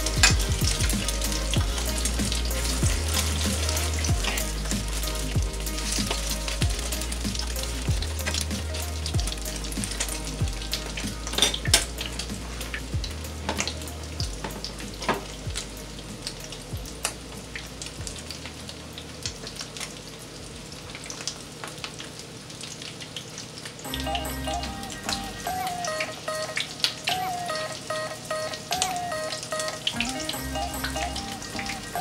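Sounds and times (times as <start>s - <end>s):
shrimp frying in hot oil: 0.0s - 32.0s
fork stirring in a pan: 1.0s - 10.4s.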